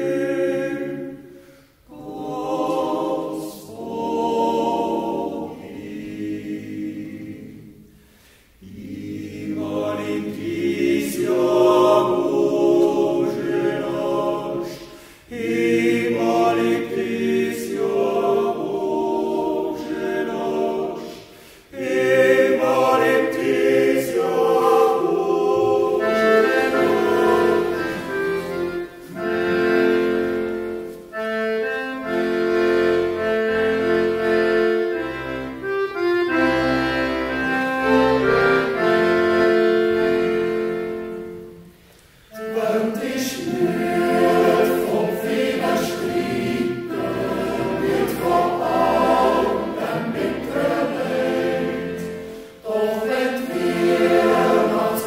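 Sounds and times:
choir singing sustained chords: 0.0s - 55.0s
singers breathing: 1.2s - 1.9s, 7.9s - 8.6s, 14.8s - 15.3s, 21.0s - 21.8s, 52.1s - 52.7s.

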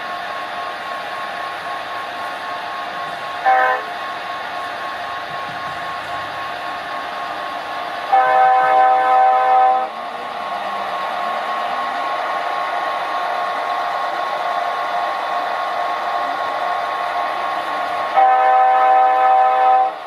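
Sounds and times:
electric train hum and whine: 0.0s - 20.0s
train horn: 3.4s - 3.9s, 8.1s - 10.0s, 18.1s - 20.0s.

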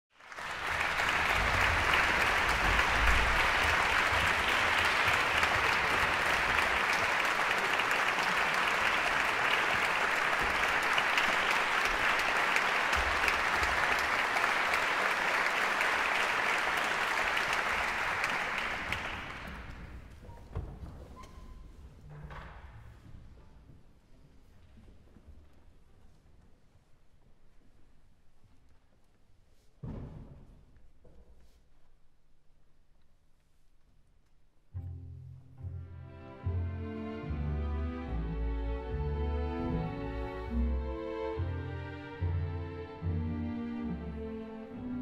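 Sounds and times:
audience applauding: 0.1s - 20.2s.

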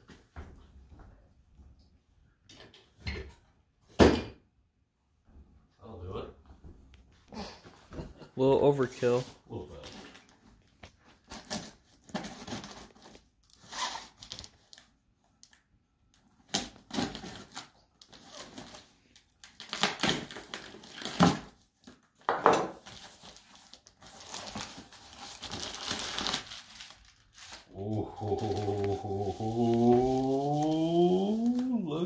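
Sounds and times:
bubble wrap crinkling: 9.0s - 22.2s, 22.8s - 32.0s
tape tearing and cardboard scraping: 11.3s - 14.5s, 16.5s - 18.8s, 19.5s - 21.6s.

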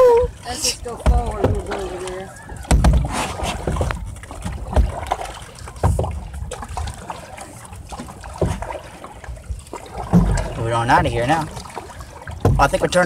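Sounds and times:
paddling water noise: 0.0s - 13.0s
low dull thumps: 0.9s - 5.2s, 12.2s - 13.0s.

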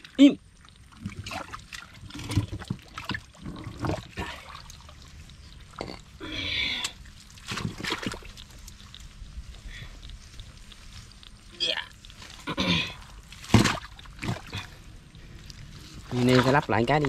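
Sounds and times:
splashes in mud and water: 0.8s - 5.0s, 6.6s - 8.8s, 11.7s - 14.8s, 16.0s - 17.0s.

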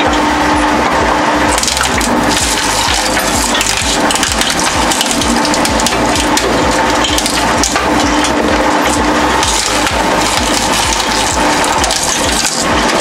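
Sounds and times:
shredder crunching shoe: 0.0s - 13.0s
shredder machine hum: 0.0s - 13.0s.

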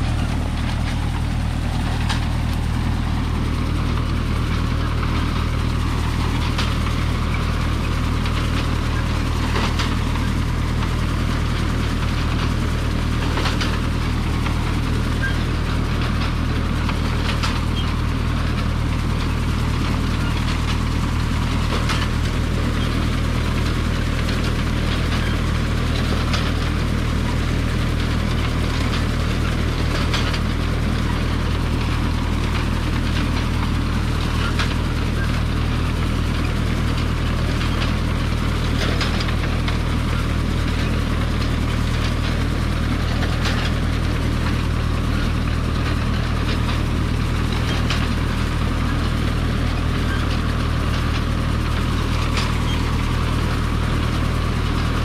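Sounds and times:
tractor engine under load: 0.0s - 55.0s.

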